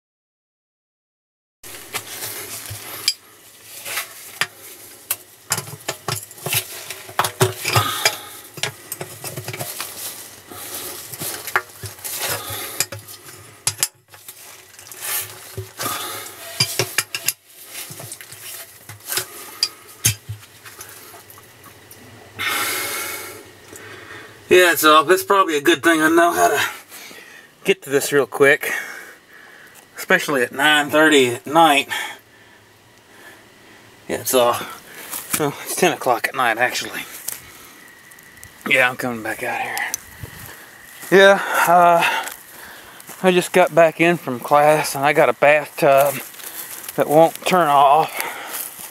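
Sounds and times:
rocks and metal clinking: 1.7 - 22.0.

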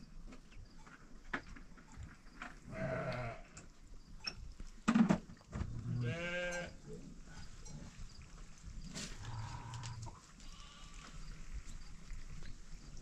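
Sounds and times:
livestock bleating: 2.7 - 3.6, 5.8 - 6.8, 9.2 - 11.0.

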